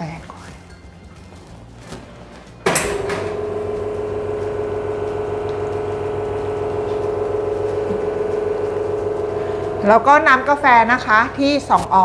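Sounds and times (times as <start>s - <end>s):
espresso machine pump running: 2.8s - 12.0s.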